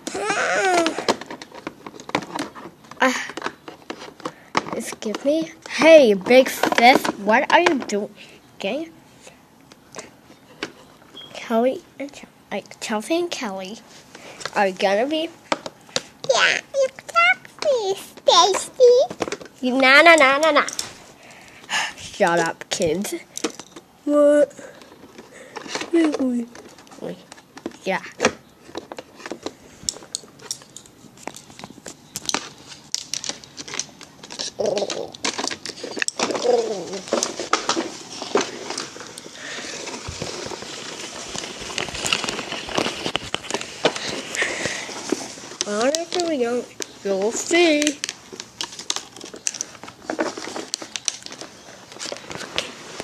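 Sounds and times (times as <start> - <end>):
plastic toys clicking and tapping: 0.0 - 8.0, 14.4 - 20.9, 23.3 - 23.8, 24.7 - 52.7.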